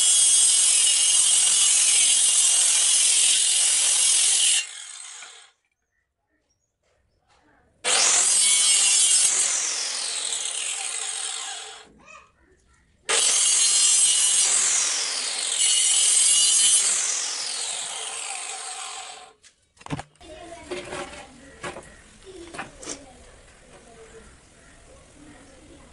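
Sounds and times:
circular saw cutting wood: 0.0s - 5.6s, 7.8s - 11.9s, 13.1s - 19.4s.

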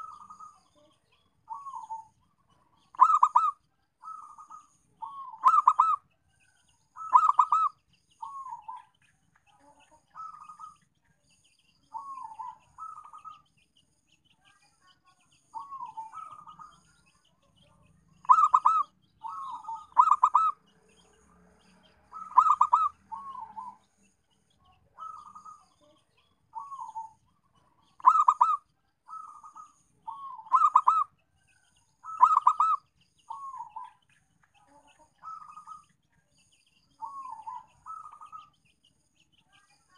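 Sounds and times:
dove cooing: 1.5s - 2.1s, 2.8s - 6.0s, 7.0s - 8.8s, 11.9s - 13.4s, 15.6s - 16.8s, 18.2s - 20.6s, 22.1s - 23.8s, 25.0s - 25.9s, 26.5s - 27.2s, 27.8s - 31.1s, 32.0s - 34.0s, 35.2s - 35.9s, 37.0s - 38.5s.

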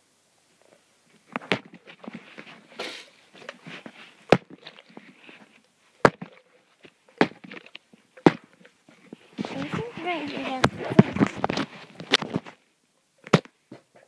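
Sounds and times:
phone handling rustling: 1.3s - 12.6s.

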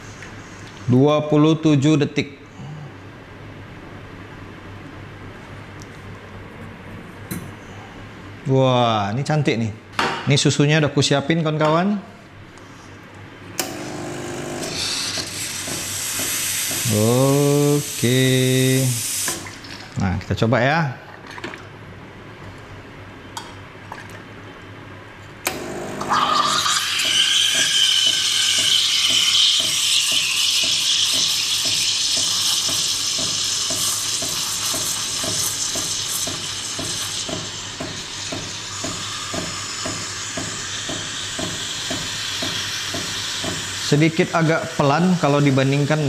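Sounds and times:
steam wand hissing: 14.6s - 19.4s, 38.5s - 44.0s
gurgling screech of steam: 14.7s - 19.2s, 26.1s - 32.5s.

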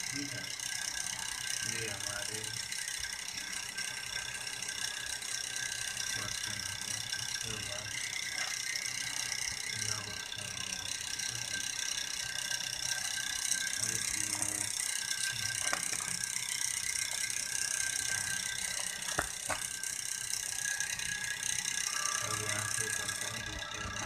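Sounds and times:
faint high-pitched tones: 21.7s - 24.0s.

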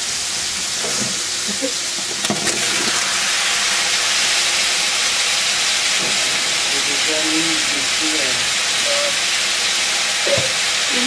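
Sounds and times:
onions sizzling in oil: 0.0s - 11.0s.

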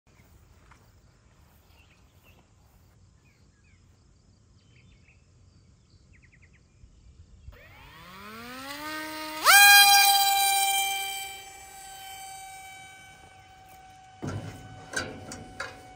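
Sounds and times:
electric motor whine: 7.6s - 15.9s.

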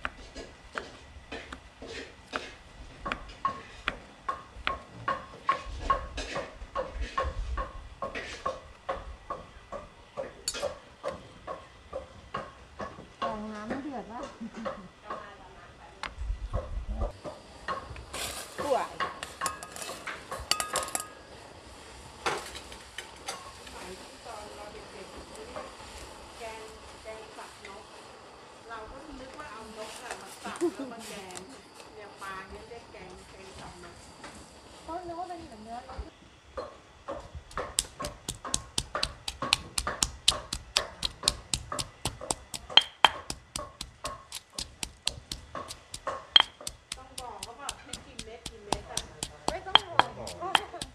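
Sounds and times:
pestle pounding in stone mortar: 0.0s - 13.4s, 37.1s - 50.9s
metal bowl clattering against pan: 41.0s - 50.9s.

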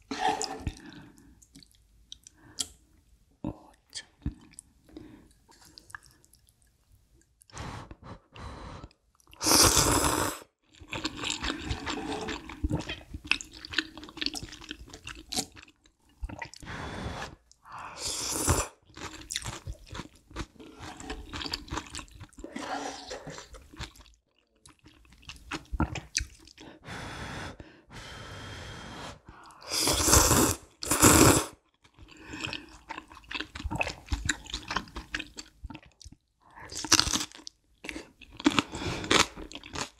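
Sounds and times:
loud noodle slurps: 9.4s - 10.4s, 29.7s - 31.6s.

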